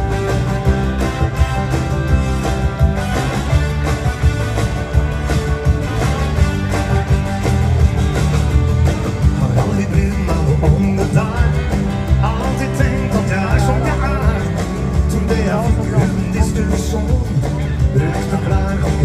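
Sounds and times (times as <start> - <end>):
live band playing dance music: 0.0 - 19.0
man singing: 9.2 - 19.0.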